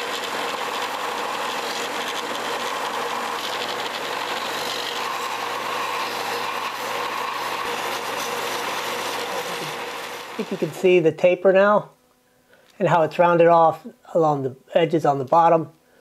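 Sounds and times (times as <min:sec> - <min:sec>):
plastic rasping on sanding belt: 0:00.0 - 0:10.8
belt sander running: 0:00.0 - 0:11.0.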